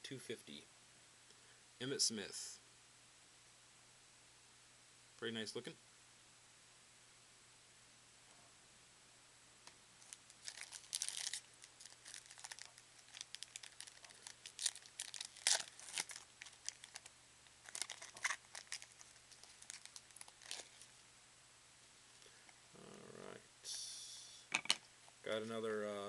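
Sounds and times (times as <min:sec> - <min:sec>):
plastic wrapper crinkling and tearing: 0:10.0 - 0:20.9.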